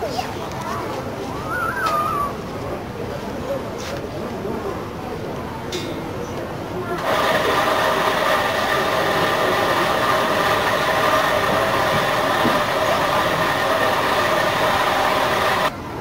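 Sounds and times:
noisy hiss: 1.4 - 16.0
loud mechanical drone: 7.0 - 15.7.

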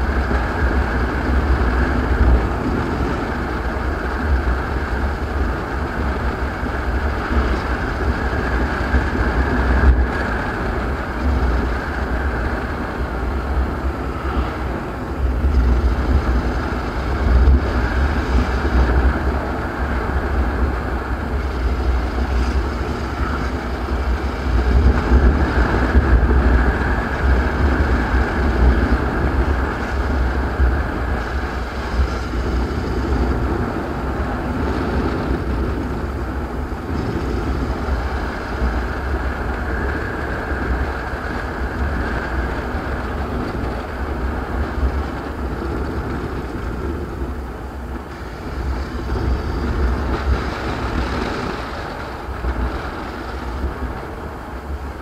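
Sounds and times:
wind noise: 0.0 - 55.0.

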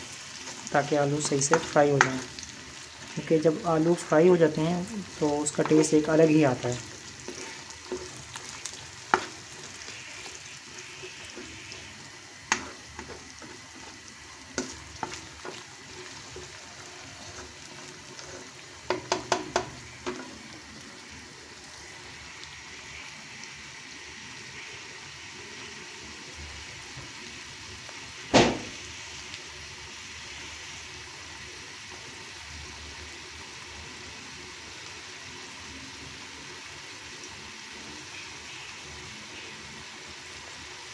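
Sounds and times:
potatoes sizzling in oil: 0.0 - 40.9
spoon knocking against pan: 18.8 - 20.2.

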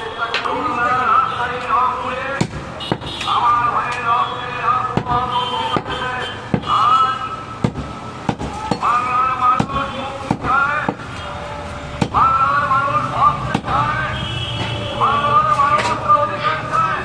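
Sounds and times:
voices: 0.0 - 7.6, 8.3 - 17.0
cleaver chopping meat and bone: 2.4 - 3.1, 4.9 - 6.8, 7.6 - 8.9, 9.5 - 11.1, 12.0 - 12.4, 13.4 - 13.8.

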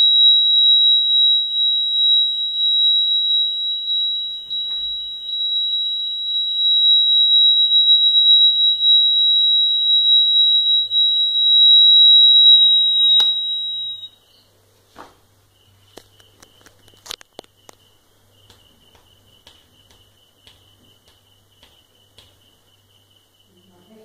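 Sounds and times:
high-pitched buzzer tone: 0.0 - 14.2.

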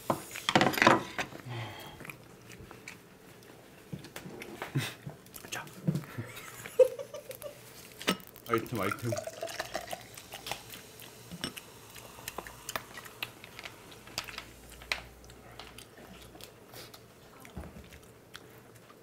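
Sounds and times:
chewing and lip smacks: 10.2 - 19.0.

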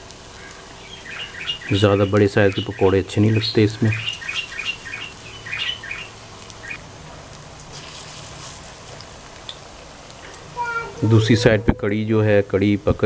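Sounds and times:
small birds chirping: 0.0 - 6.9
batter frying in hot oil: 0.0 - 11.2.

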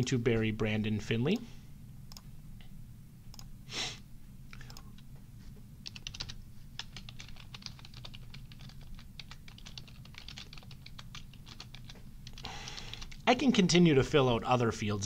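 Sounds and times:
keyboard typing: 5.8 - 13.2.

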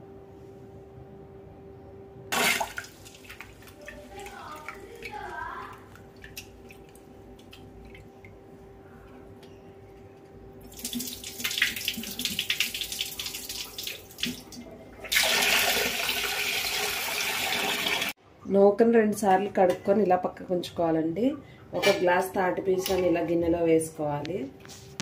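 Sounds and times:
rinse water splashing: 2.3 - 8.4, 10.6 - 18.1.

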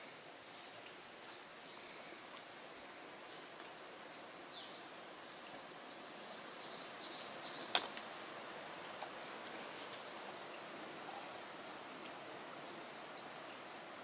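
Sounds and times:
songbird calling: 4.1 - 5.2, 6.0 - 8.0, 10.5 - 13.7.

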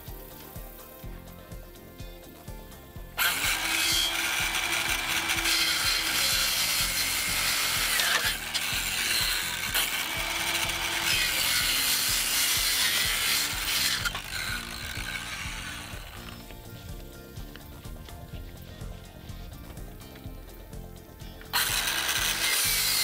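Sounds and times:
circular saw cutting wood: 3.2 - 16.7, 21.5 - 23.0.

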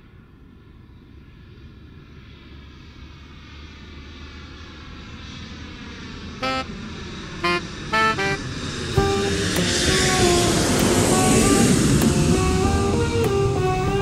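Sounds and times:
jet engines roaring: 0.4 - 14.0
short horn toots: 6.4 - 6.7, 7.4 - 14.0.

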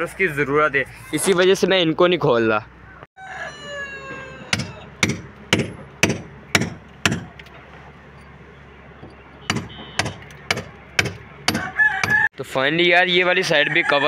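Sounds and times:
rooster crowing: 3.2 - 5.0, 11.5 - 12.3, 13.4 - 14.0
hammer on brick wall: 4.5 - 7.4, 9.5 - 12.3.

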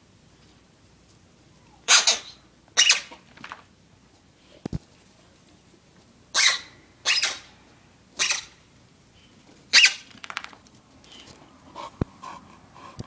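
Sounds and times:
dog barking hoarsely: 1.8 - 3.2.

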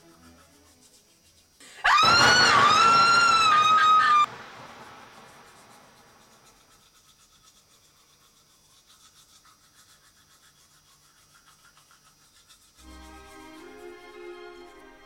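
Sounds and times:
toothbrush scrubbing teeth: 0.0 - 1.6, 5.5 - 14.9.

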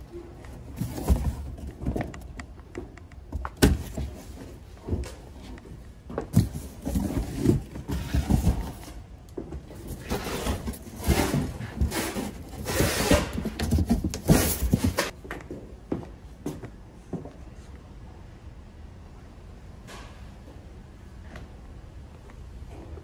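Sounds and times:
cardboard boxes knocking: 3.3 - 5.1, 9.7 - 15.1.

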